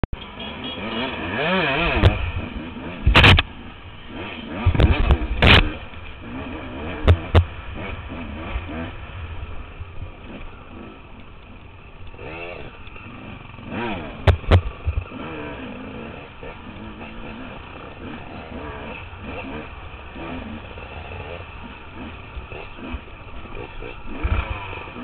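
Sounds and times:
dirt bike engine revving: 0.2s - 25.0s
sharp knocks: 3.1s - 3.5s, 14.2s - 15.0s.

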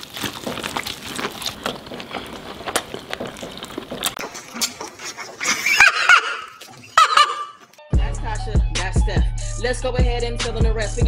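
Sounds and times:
people chewing chicken wings: 0.0s - 7.8s.

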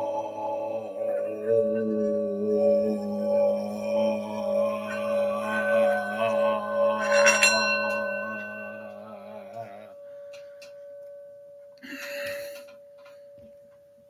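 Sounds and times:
metal singing bowl ringing: 0.0s - 14.0s
singing bowl strike: 2.4s - 11.8s.

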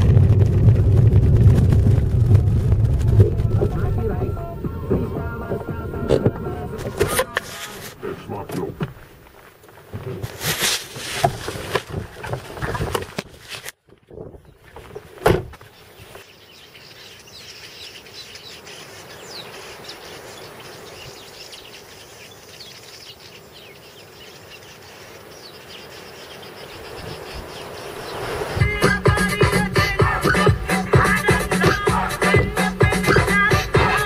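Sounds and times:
insects: 14.2s - 28.7s
thump: 15.2s - 15.6s.

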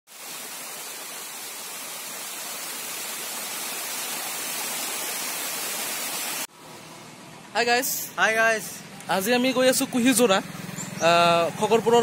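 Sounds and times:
waterfall over rocks: 0.1s - 6.5s.

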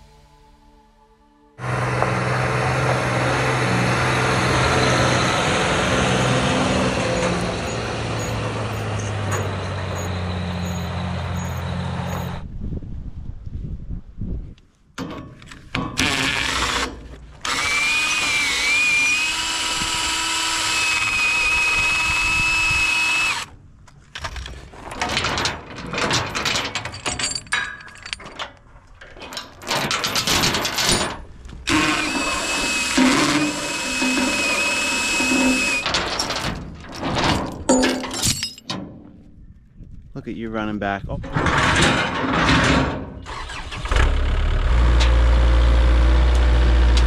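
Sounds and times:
cordless drill motor whine: 17.4s - 23.5s, 31.7s - 35.8s
steel chains clanking: 24.2s - 31.4s, 33.4s - 38.9s.

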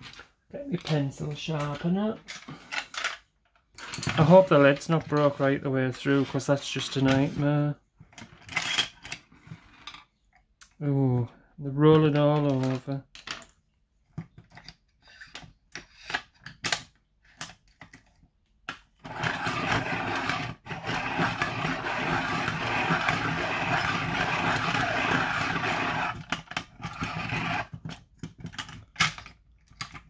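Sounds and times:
pencil sharpener grinding: 19.0s - 28.0s.

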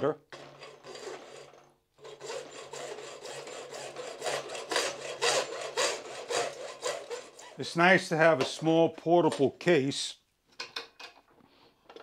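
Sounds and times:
hacksaw cutting plastic pipe: 0.3s - 7.7s.

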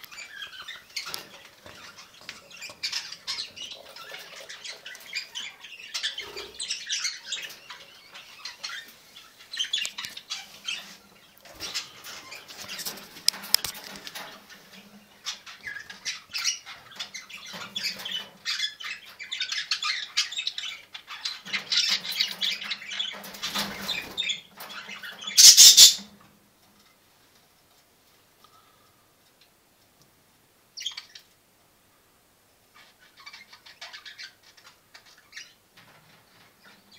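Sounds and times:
budgerigars chattering and chirping: 0.1s - 12.8s, 15.2s - 26.1s, 32.8s - 35.6s.

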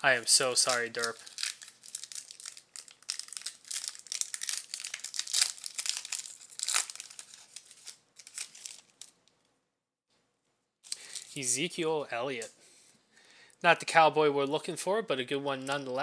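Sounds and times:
foil wrapper crinkling and tearing: 0.3s - 9.2s, 10.9s - 11.5s.

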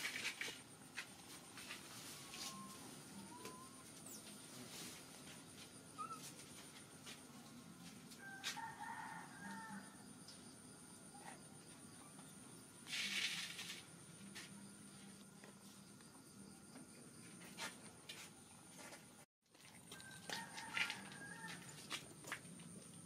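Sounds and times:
faint animal call: 2.1s - 4.3s, 5.9s - 6.6s.

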